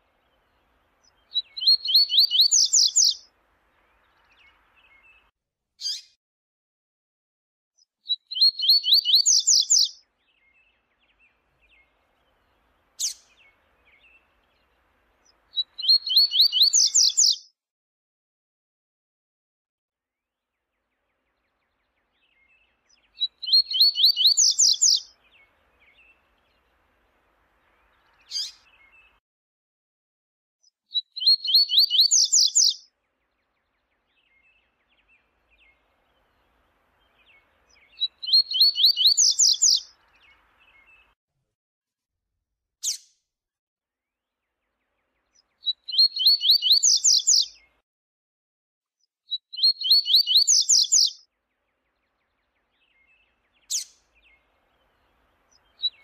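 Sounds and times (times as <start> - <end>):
bird trilling song: 0.0 - 6.2, 7.8 - 17.5, 21.0 - 26.9, 27.6 - 29.2, 30.9 - 41.2, 44.5 - 47.8, 49.3 - 56.0.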